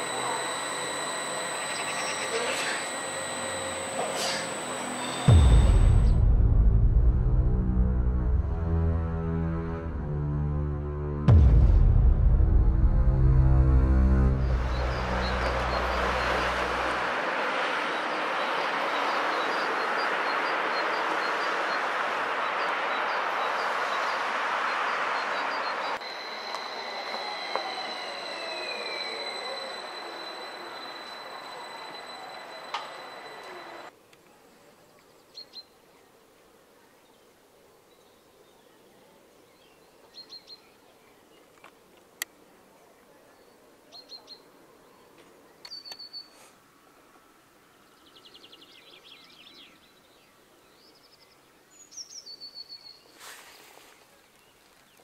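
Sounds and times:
small bird chirping: 0.0 - 5.7
faint outdoor hush: 0.0 - 6.2
tones falling in pitch: 0.0 - 6.2
steady high tone: 0.0 - 7.4, 11.3 - 19.3, 25.9 - 33.9
steady rushing noise: 0.0 - 7.4
electric train motor whine: 0.0 - 10.0, 11.2 - 33.9
click: 32.7 - 34.3.

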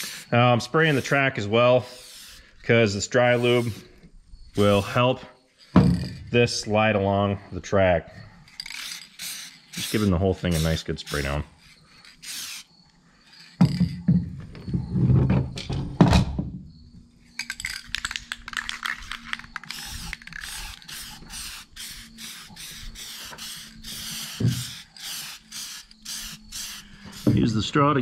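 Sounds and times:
aerosol can spraying hisses: 0.0 - 1.2, 1.8 - 2.5, 3.3 - 3.9, 8.8 - 11.4, 12.0 - 12.7, 19.6 - 27.6.

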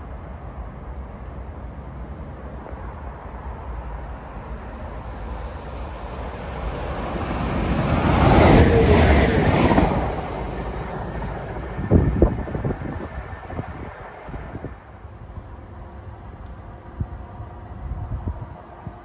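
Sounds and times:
diesel train passing: 0.0 - 19.0
wind on microphone: 7.0 - 15.8, 16.6 - 19.0.

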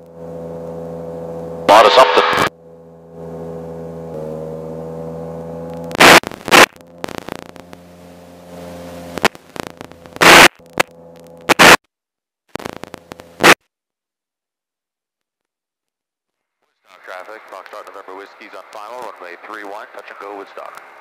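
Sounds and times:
aircraft engine drone: 0.0 - 11.8, 16.9 - 21.0
loud noise bursts: 1.7 - 2.5, 5.9 - 7.6, 9.0 - 11.8, 12.6 - 13.6.

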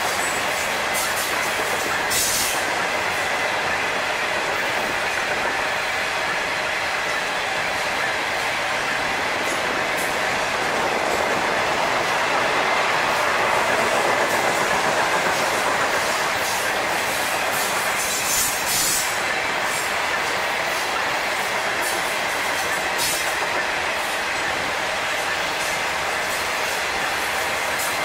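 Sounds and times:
steel train wheels rolling on rail: 0.0 - 28.0.

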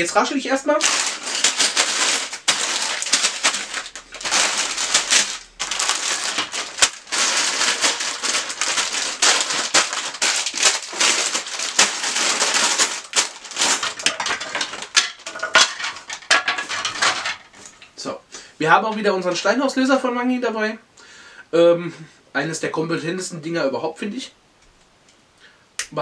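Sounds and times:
plastic bags rustling: 0.0 - 19.8
plastic bricks clicking: 13.6 - 17.9.

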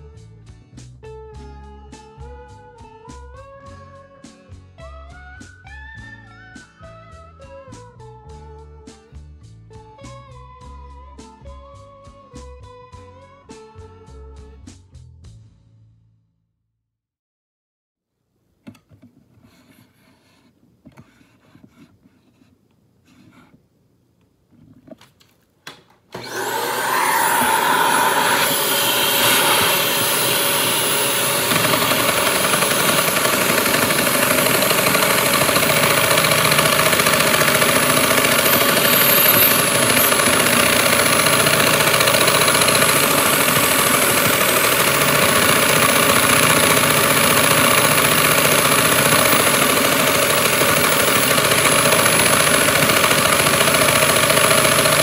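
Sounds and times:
vacuum cleaner running: 26.1 - 55.0
fast chatter of toy engine valve: 27.4 - 55.0.

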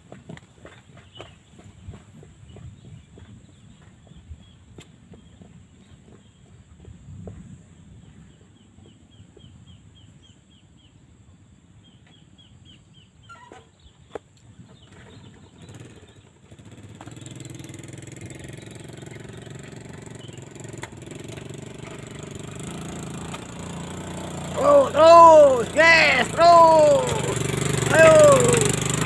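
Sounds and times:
motorcycle engine running: 15.1 - 29.0.

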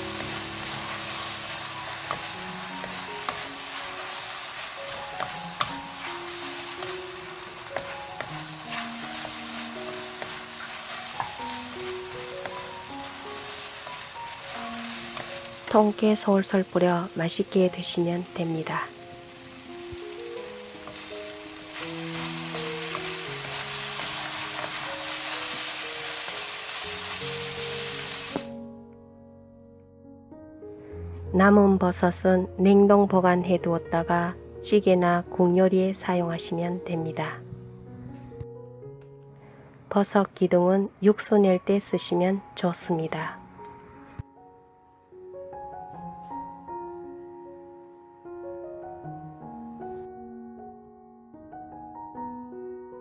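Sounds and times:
spatula tossing food: 0.0 - 28.5
vegetables sizzling in a pan: 0.0 - 28.6.

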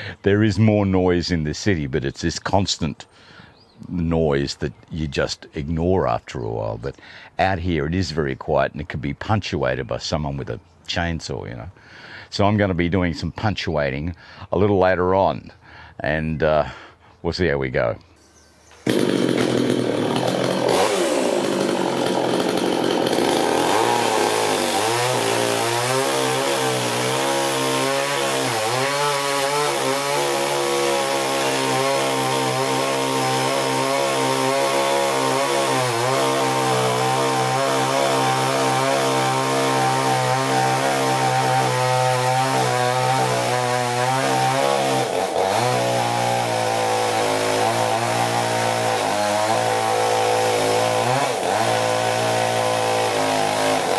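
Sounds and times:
chainsaw cutting log: 18.4 - 53.9.

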